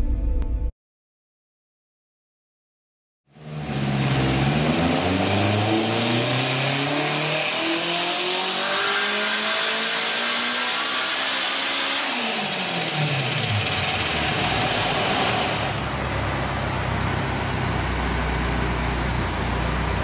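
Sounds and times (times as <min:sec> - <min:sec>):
car engine revving on a dyno: 0:03.3 - 0:20.0.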